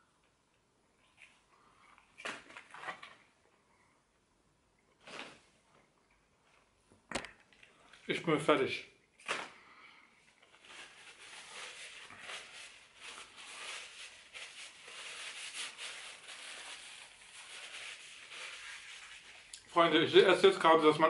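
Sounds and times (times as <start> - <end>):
paper napkin rustling: 10.5 - 20.6.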